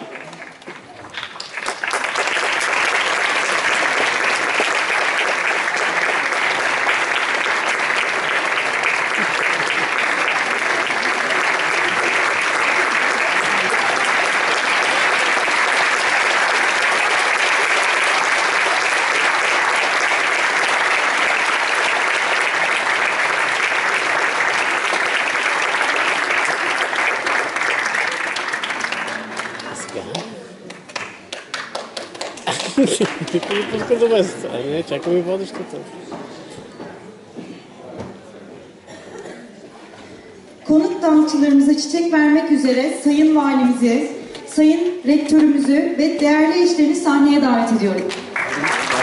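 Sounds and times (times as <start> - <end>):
audience applauding: 0.0 - 34.5, 48.1 - 49.0.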